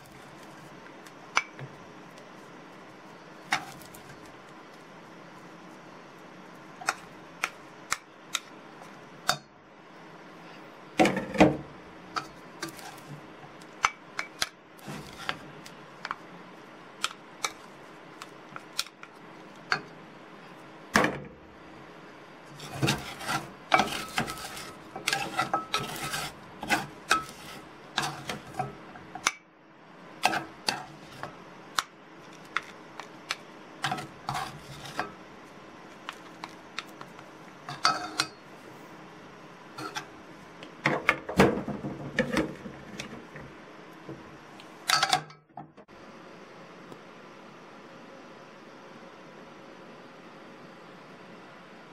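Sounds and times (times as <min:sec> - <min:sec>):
rice paddle scraping metal pan: 0:03.4 - 0:04.2, 0:12.2 - 0:13.3, 0:14.8 - 0:15.7, 0:22.5 - 0:28.9, 0:30.2 - 0:31.4, 0:33.8 - 0:35.2, 0:37.6 - 0:38.4, 0:39.8 - 0:40.2.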